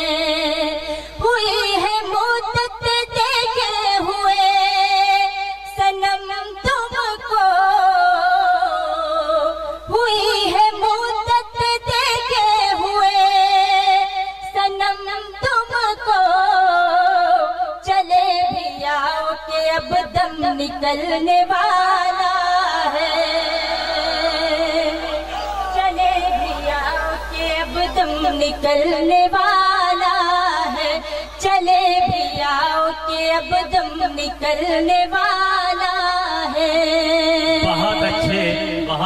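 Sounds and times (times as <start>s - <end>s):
woman singing through microphone: 0.0s - 38.9s.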